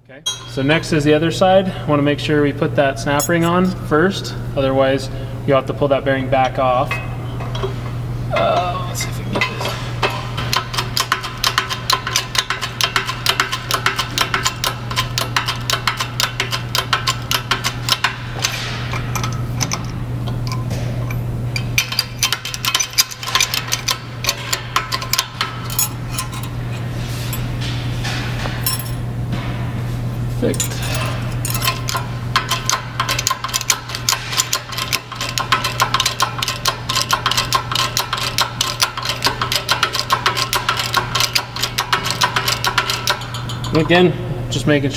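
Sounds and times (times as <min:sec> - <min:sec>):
metallic clinking and rattling: 0:09.0 - 0:27.6, 0:28.6 - 0:29.1, 0:30.5 - 0:44.0.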